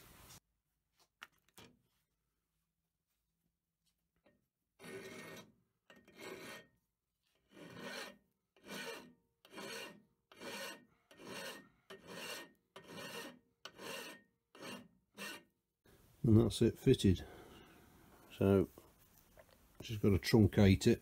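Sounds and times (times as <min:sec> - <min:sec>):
file rasping across steel: 0:04.8 - 0:06.8, 0:07.4 - 0:15.6.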